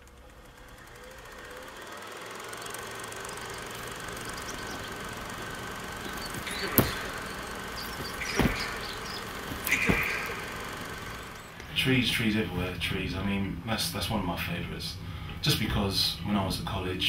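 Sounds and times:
steady background noise: 0.0 - 17.0
sharp clicks or knocks: 6.1 - 11.7.

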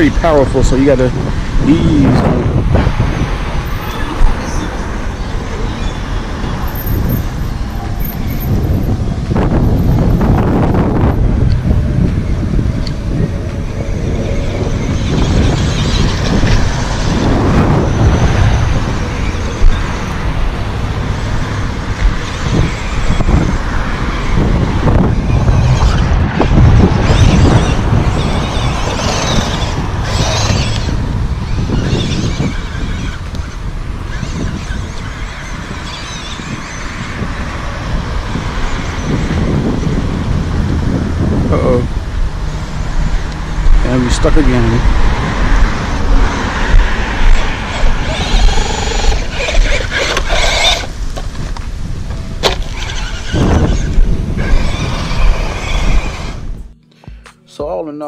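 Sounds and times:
wind rumble on microphone: 0.0 - 57.2
rc truck motor whining: 27.0 - 36.9, 47.3 - 51.0, 52.4 - 56.5
electric motor whining: 46.1 - 51.3, 52.1 - 56.8.

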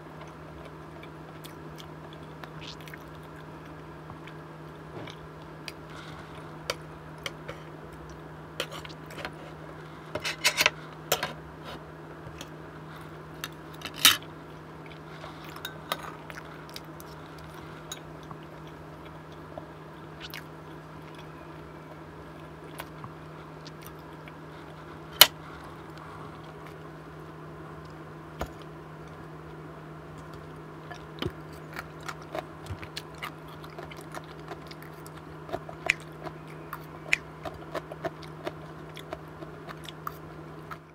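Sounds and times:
steady low hum: 0.0 - 40.9
chewing and mouth sounds: 0.2 - 9.3, 14.6 - 21.6, 22.3 - 26.9, 30.2 - 40.9.

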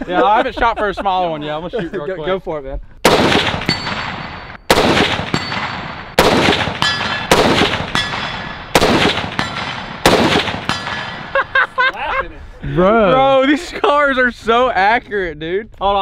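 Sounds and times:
rifle shots echoing: 3.0 - 11.4
ping of steel target hit: 3.4 - 4.6, 5.2 - 8.7, 10.6 - 11.2.

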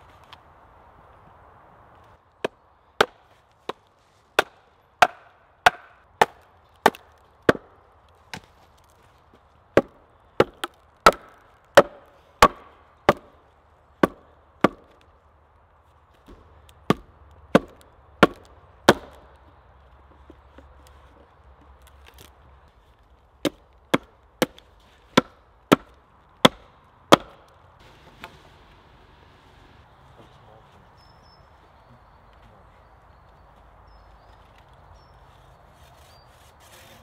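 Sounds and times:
axe splitting wood: 2.4 - 8.9, 9.6 - 15.1, 16.2 - 20.9, 23.4 - 27.6.

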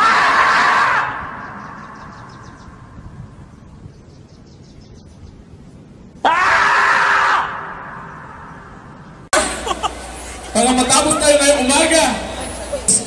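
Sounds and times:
marmot screaming: 6.2 - 7.7.

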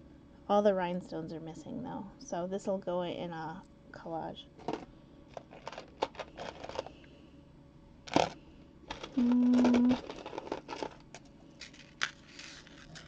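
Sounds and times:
short low hum: 6.3 - 10.2.

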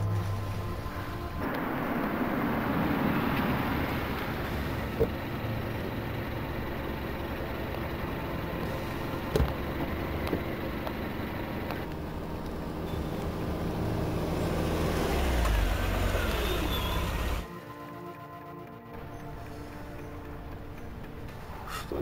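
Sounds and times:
car engine drawing up: 0.0 - 17.5
cars passing: 0.0 - 17.5.

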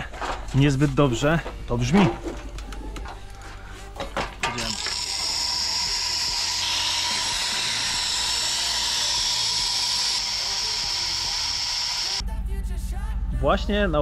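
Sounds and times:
machine hum: 4.3 - 12.2.

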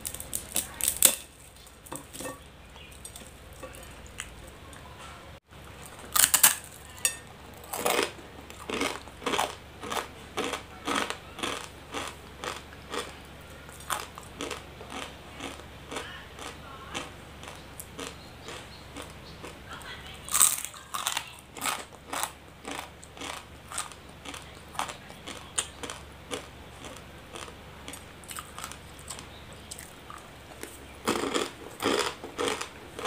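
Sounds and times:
dry noodles crunching in mouth: 7.6 - 19.6, 20.3 - 33.0.

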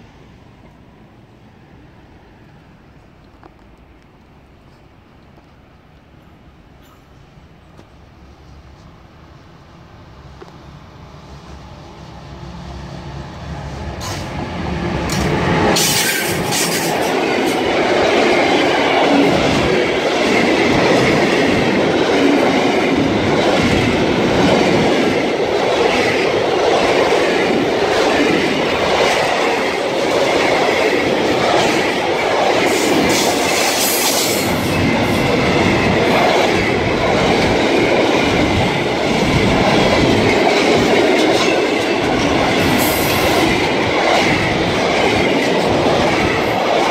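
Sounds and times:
train wheels rumbling on rails: 10.2 - 46.9.

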